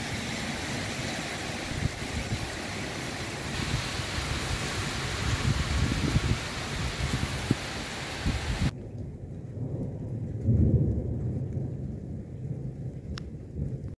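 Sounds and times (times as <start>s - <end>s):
heavy downpour hissing: 0.0s - 8.7s
light rain: 0.0s - 14.0s
low rumble of thunder: 8.3s - 14.0s.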